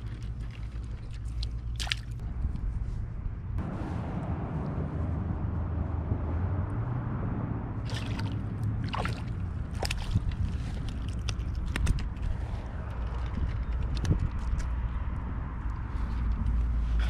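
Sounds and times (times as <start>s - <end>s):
light splashes and drips on water: 0.0s - 2.2s, 7.8s - 12.1s
steady low rumble: 0.0s - 17.0s.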